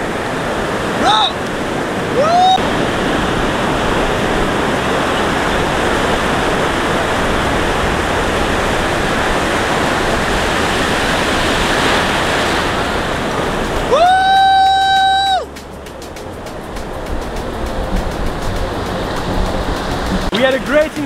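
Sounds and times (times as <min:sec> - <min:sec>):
breaking surf: 0:00.0 - 0:21.0
rising whoop: 0:02.1 - 0:02.6, 0:13.8 - 0:15.5.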